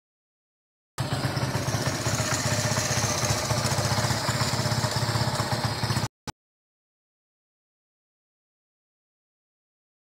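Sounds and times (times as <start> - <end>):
small engine idling: 1.0 - 6.1.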